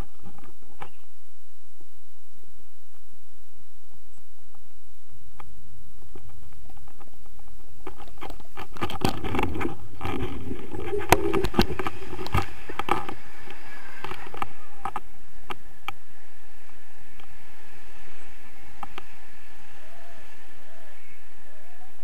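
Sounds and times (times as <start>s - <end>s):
wind buffeting microphone: 0.0s - 22.0s
sharp clicks and rustling: 6.1s - 16.0s.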